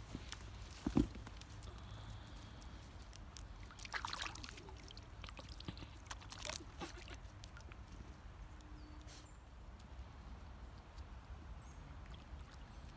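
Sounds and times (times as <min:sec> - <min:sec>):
paws splashing in shallow water: 0:03.1 - 0:08.2.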